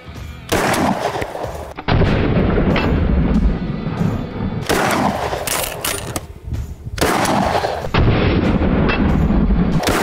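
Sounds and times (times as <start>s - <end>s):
loud shotgun shots: 0.5s - 2.9s, 4.6s - 6.3s, 7.0s - 10.0s.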